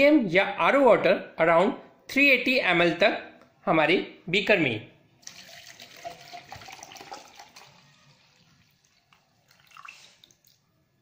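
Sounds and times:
water pouring into plastic beaker: 5.2s - 10.7s.

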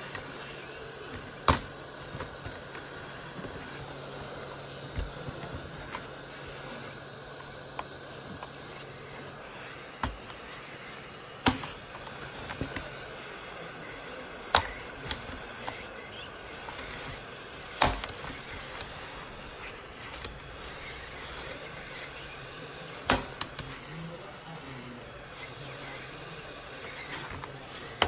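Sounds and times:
heat gun blowing: 0.0s - 28.0s
sharp clicks from keyboard plate: 14.5s - 15.8s, 16.7s - 18.9s.

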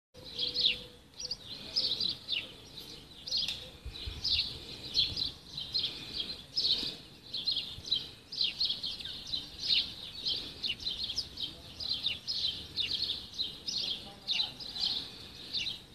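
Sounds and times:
small birds chirping: 0.2s - 15.9s.

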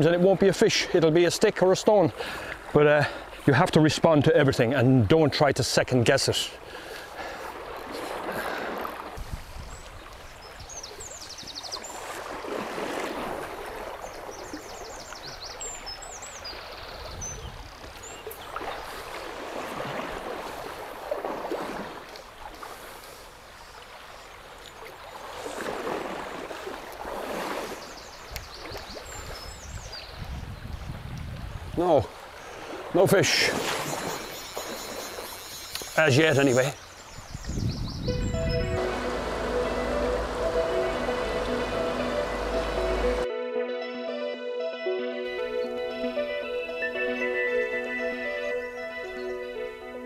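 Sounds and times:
river water rushing: 10.2s - 15.0s, 32.1s - 37.1s, 38.1s - 43.3s
short high chirps: 38.0s - 43.2s.

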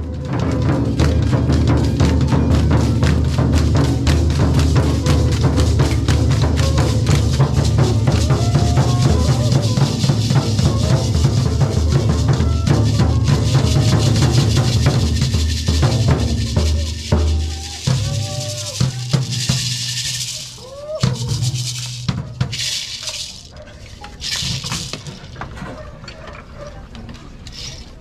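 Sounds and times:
large drum beating: 0.0s - 20.3s
hand rattles shaking: 0.9s - 25.4s.

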